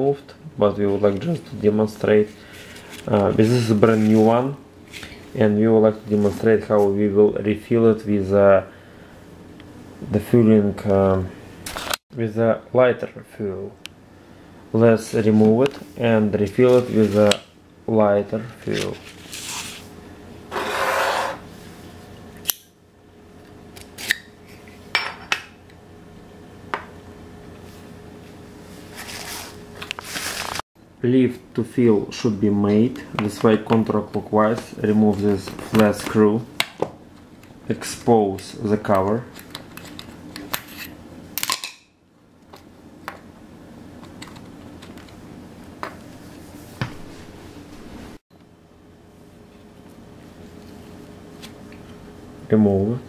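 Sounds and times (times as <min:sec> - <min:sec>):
steady low hum: 0:00.0 - 0:53.0
plastic packaging rustling: 0:28.9 - 0:30.6.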